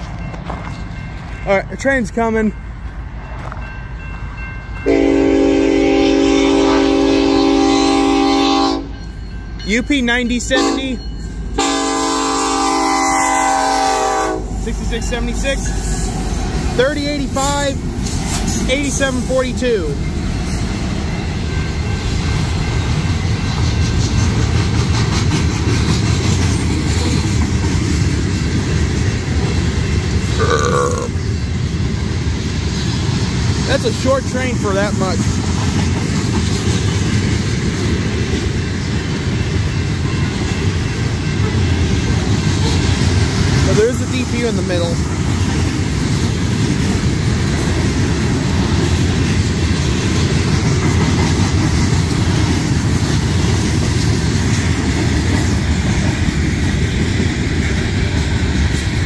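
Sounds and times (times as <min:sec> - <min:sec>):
freight train rumbling past: 0:00.0 - 0:59.0
locomotive air horn blast: 0:04.8 - 0:08.9, 0:10.6 - 0:10.8, 0:11.6 - 0:14.5.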